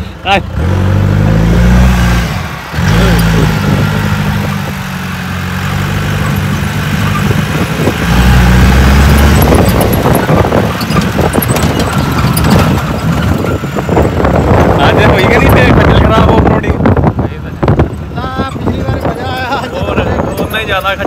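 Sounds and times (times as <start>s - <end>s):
car engine at low revs: 0.0s - 18.5s
knocks and rattles from rough ground: 5.8s - 21.0s.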